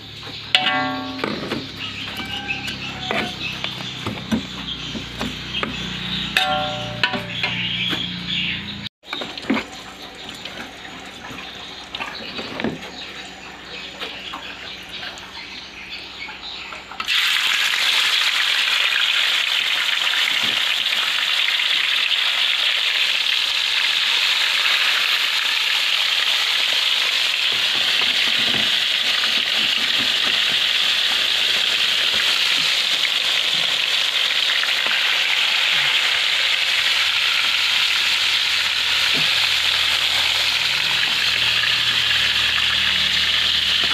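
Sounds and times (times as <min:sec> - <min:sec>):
fish sizzling in hot oil: 0:17.1 - 0:43.9.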